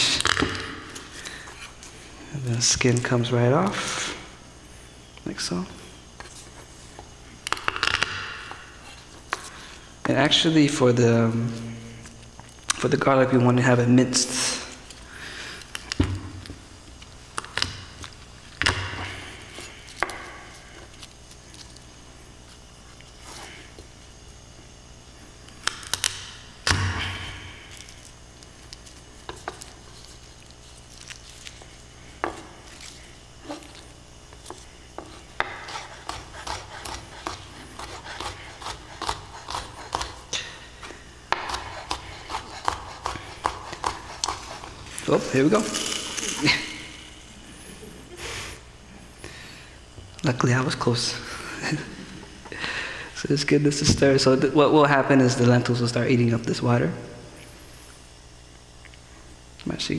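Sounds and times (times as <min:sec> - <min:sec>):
knife chopping on wooden board: 0:35.0 - 0:40.2, 0:41.3 - 0:44.7.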